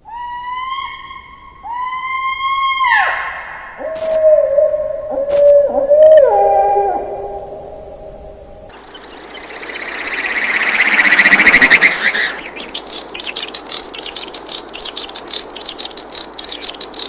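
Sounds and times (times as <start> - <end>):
fast-pulsing high buzz: 7.8 - 17.0
rapid sharp high chirps: 8.7 - 17.0.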